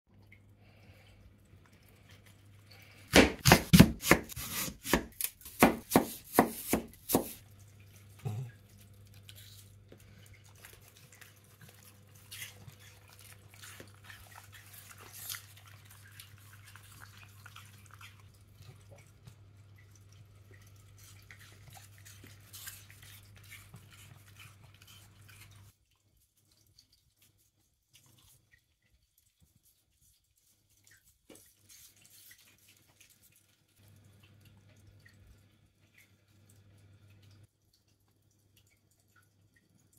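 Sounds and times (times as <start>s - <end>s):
dog crunching apple: 10.4s - 18.2s.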